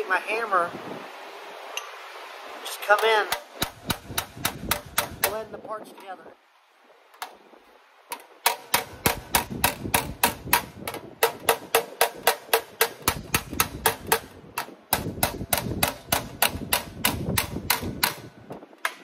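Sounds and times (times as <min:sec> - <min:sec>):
hammer striking sheet metal: 0:03.3 - 0:05.4, 0:08.5 - 0:18.3.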